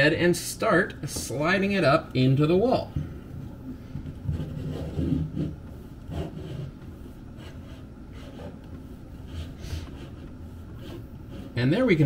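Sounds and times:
low steady hum: 0.0s - 12.0s
push rod scraping in wall: 4.2s - 11.8s.

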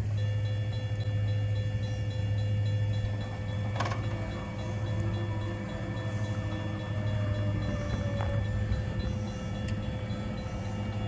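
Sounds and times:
low steady hum: 0.0s - 11.0s
railroad crossing bell ringing: 0.0s - 11.0s
crossing gate clank: 3.0s - 5.5s.

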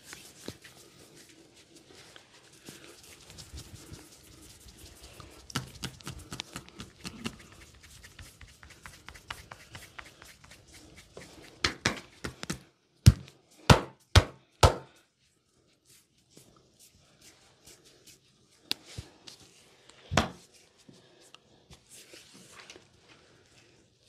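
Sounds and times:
hands tapping and chopping on skin: 11.6s - 14.9s.

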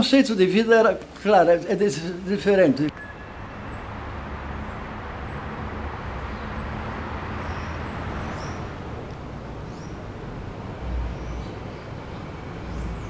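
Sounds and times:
short high chirps: 2.9s - 3.4s.

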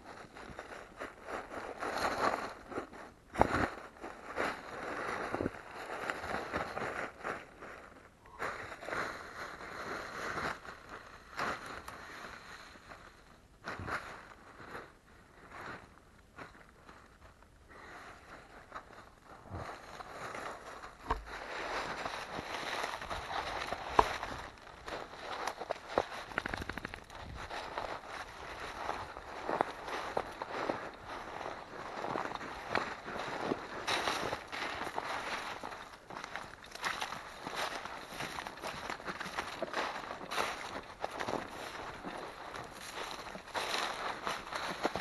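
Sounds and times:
footsteps walking: 18.3s - 45.0s.

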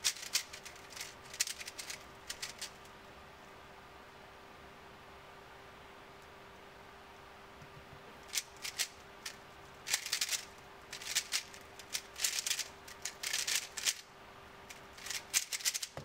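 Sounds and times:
puzzle cube plastic clicking: 0.0s - 2.8s, 8.2s - 14.0s, 14.7s - 16.0s.

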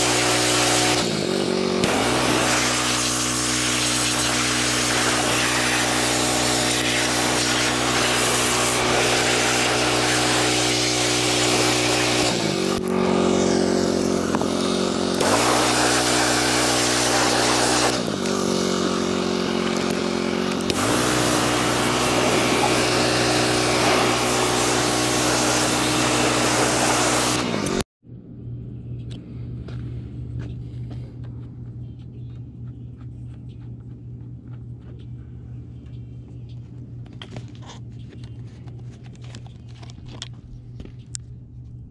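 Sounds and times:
water spray hissing: 0.0s - 27.8s
pressure washer running: 0.0s - 27.9s.

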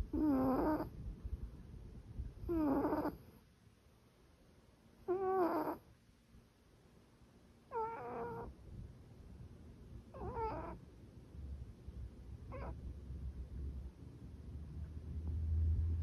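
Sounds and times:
cat snoring: 0.1s - 0.9s, 2.5s - 3.2s, 5.0s - 5.8s, 7.7s - 8.5s, 10.2s - 10.8s.

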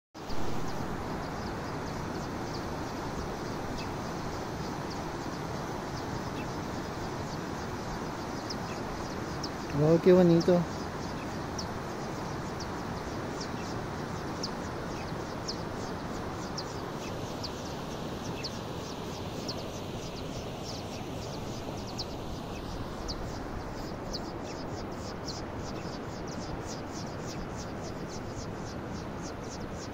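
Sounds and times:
river rushing: 0.2s - 9.8s
small bird chirping: 0.2s - 29.9s.

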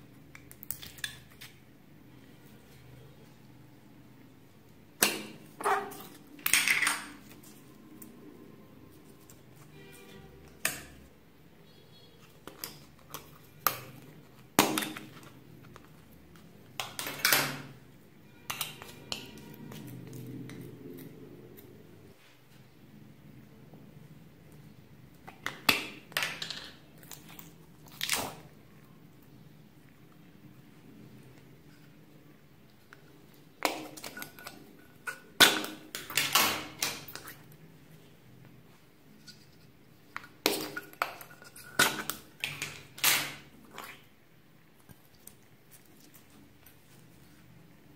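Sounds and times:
plastic tubs clicking and knocking: 12.3s - 16.0s, 25.2s - 27.4s, 40.1s - 43.5s.

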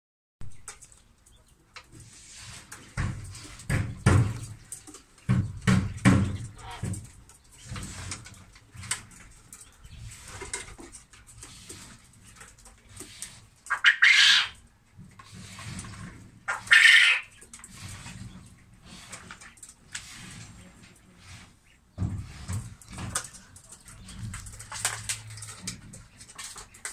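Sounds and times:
knocks and rustles: 0.4s - 13.7s, 17.4s - 26.9s
loud harsh bird calls: 13.7s - 14.6s, 16.5s - 18.2s
quail calling: 13.7s - 14.6s, 16.5s - 17.5s.

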